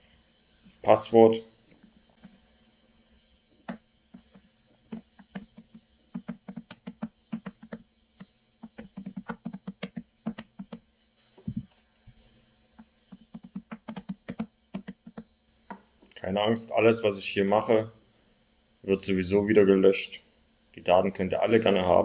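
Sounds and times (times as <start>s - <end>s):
keyboard typing: 3.7s - 7.8s, 8.6s - 10.8s, 13.1s - 15.3s.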